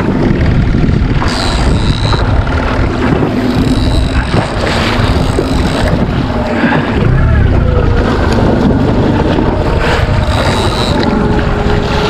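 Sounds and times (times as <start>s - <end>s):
wind buffeting microphone: 0.0s - 12.0s
water sloshing against boat hull: 1.2s - 12.0s.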